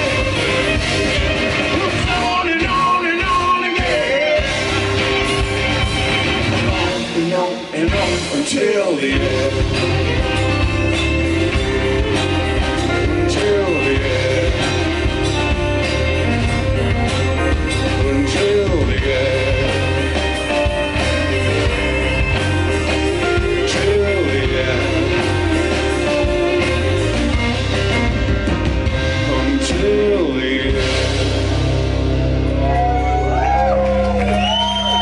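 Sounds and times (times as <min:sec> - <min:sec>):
bass guitar: 0:00.0 - 0:35.0
drum kit: 0:00.0 - 0:35.0
guitars: 0:00.0 - 0:35.0.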